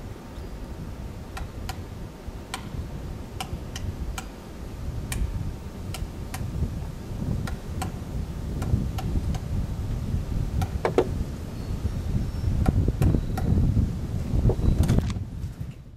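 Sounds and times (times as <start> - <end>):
woodpecker knocking on wood: 10.6 - 11.2.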